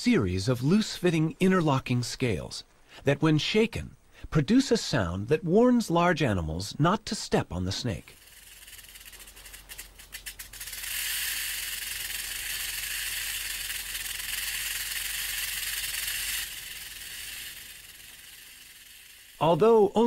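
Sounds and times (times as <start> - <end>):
rattlesnake tail rattling: 8.0 - 20.0.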